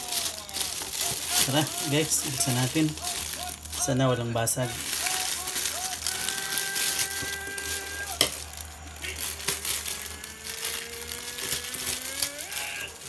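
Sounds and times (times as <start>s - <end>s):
plastic bag crinkling: 0.0s - 13.0s
scissors cutting plastic: 4.8s - 13.0s.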